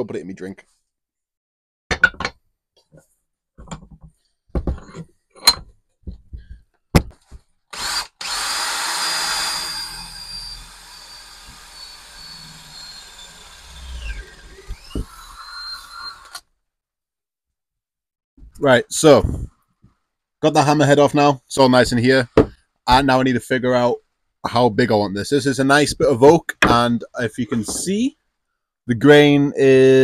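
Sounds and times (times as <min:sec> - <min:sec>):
power drill whining: 0:07.7 - 0:16.4.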